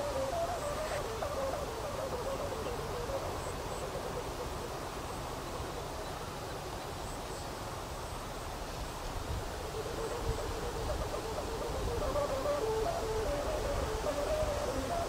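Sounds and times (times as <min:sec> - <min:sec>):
kite string humming drone: 0:00.0 - 0:04.6, 0:09.3 - 0:15.0.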